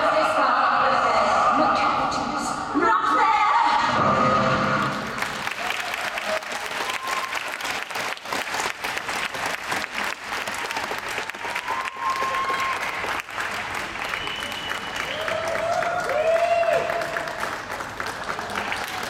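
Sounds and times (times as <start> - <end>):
audience applauding: 4.8 - 19.0.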